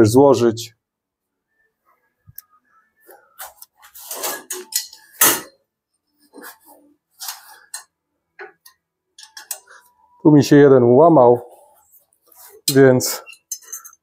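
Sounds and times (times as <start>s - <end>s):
steel tube frame clanking: 4.1s - 5.6s, 12.6s - 14.0s.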